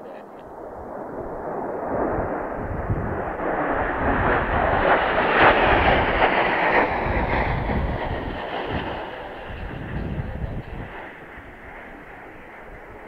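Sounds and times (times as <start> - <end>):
jet engine roar: 0.0 - 13.0
wind rumbling on microphone: 0.0 - 13.0.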